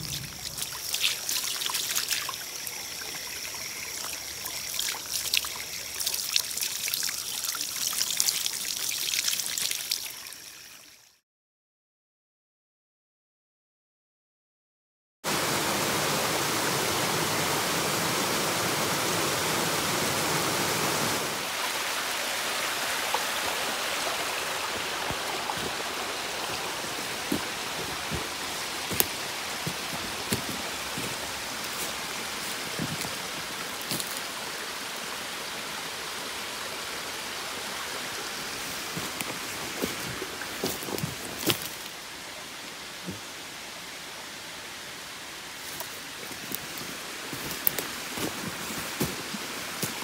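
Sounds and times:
stream rushing over rocks: 0:00.0 - 0:10.4, 0:15.3 - 0:50.0
dry leaves and twigs crackling underfoot: 0:25.1 - 0:34.3, 0:38.6 - 0:42.0, 0:45.6 - 0:50.0.

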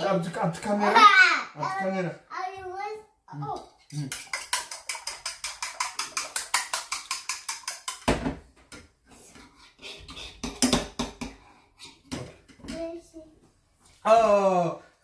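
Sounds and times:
fork beating egg in bowl: 0:03.6 - 0:08.1
fork knocking and scraping bowl: 0:03.8 - 0:09.4.

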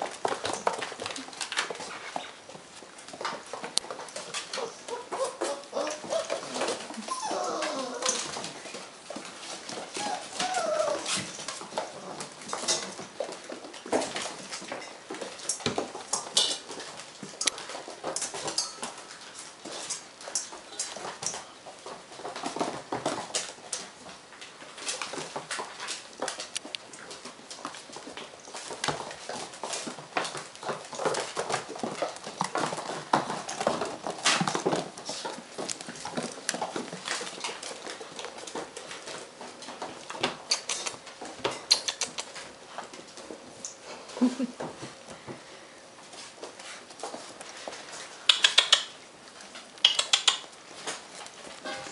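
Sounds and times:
puppies moving on hard floor: 0:00.0 - 0:51.9
puppy whimper: 0:04.5 - 0:08.8, 0:09.9 - 0:11.4.

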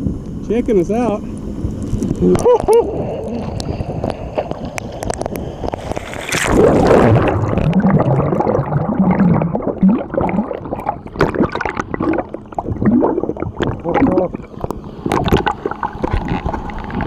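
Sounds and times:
underwater gurgling and sloshing: 0:00.0 - 0:17.0
splash into water: 0:05.8 - 0:08.6.

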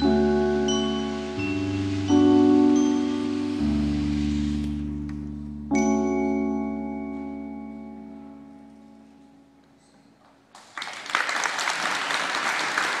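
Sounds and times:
percussion ensemble chord ringing: 0:00.0 - 0:04.8
audience applause: 0:10.5 - 0:13.0.

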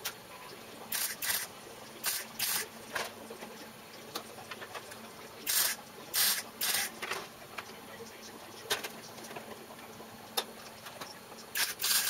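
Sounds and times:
welder crackling bursts: 0:00.9 - 0:02.7, 0:05.4 - 0:06.9, 0:11.5 - 0:12.0.

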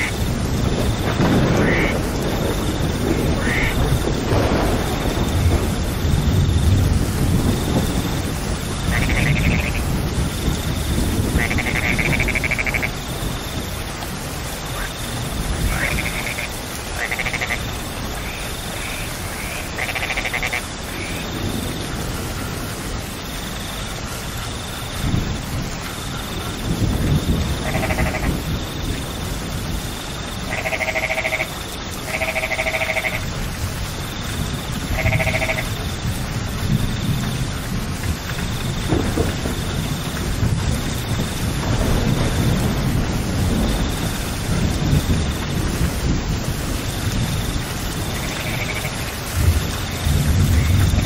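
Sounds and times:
steady rain: 0:00.0 - 0:51.0.

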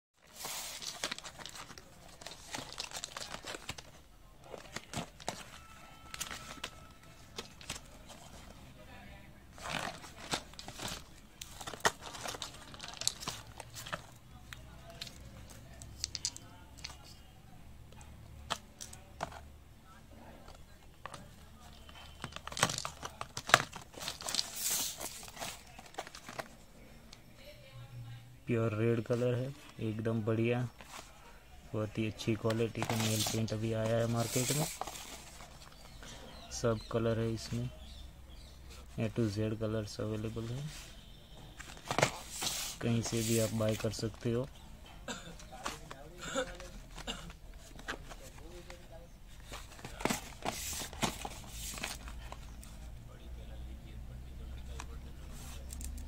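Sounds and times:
plastic packaging crinkling: 0:00.2 - 0:08.2, 0:09.6 - 0:14.1, 0:21.0 - 0:26.6, 0:32.2 - 0:36.0
plastic case rustling: 0:00.2 - 0:08.5, 0:09.5 - 0:14.2, 0:18.5 - 0:19.5, 0:20.4 - 0:26.7, 0:32.0 - 0:36.1, 0:41.6 - 0:44.4, 0:45.4 - 0:52.7.

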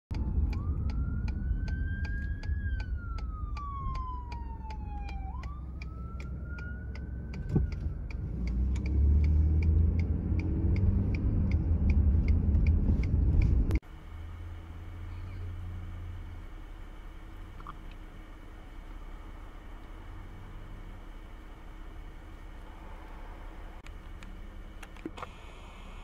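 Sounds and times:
siren wailing: 0:00.1 - 0:08.1
steady ticking: 0:00.1 - 0:13.8
car engine: 0:00.1 - 0:26.0
road rumble: 0:00.1 - 0:26.0.

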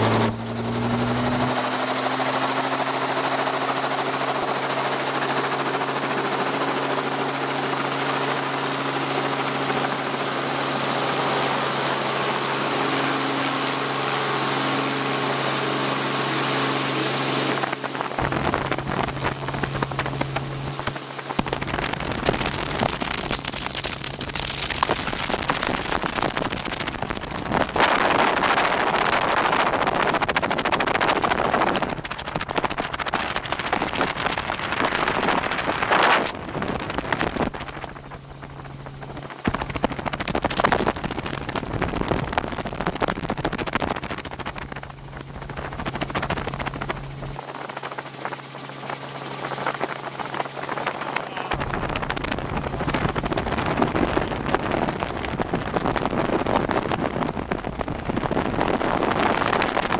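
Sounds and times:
helicopter engine and rotor: 0:00.0 - 0:59.9
wind noise: 0:00.0 - 0:59.9.

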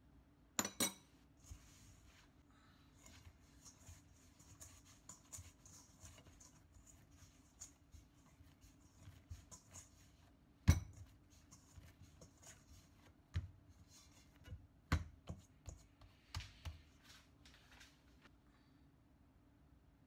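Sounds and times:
dough kneaded in steel bowl: 0:00.6 - 0:18.3
dull thumps of dough: 0:10.6 - 0:17.0.

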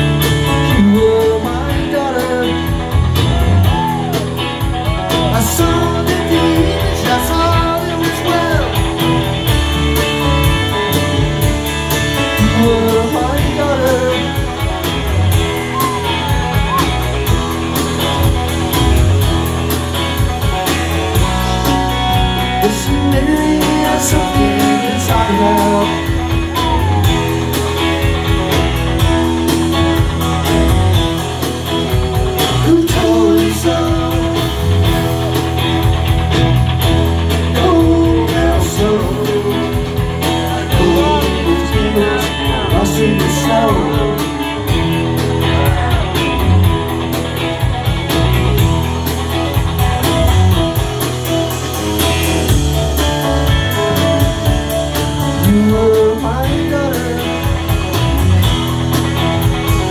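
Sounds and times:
person singing: 0:00.0 - 0:10.5, 0:11.9 - 0:17.8, 0:21.2 - 0:28.3, 0:31.2 - 0:46.8, 0:53.7 - 0:58.8
live rock band playing: 0:00.0 - 0:59.9.

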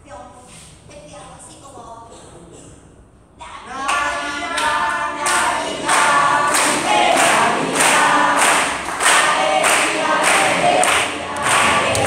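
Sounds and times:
group of voices singing: 0:03.7 - 0:12.0.

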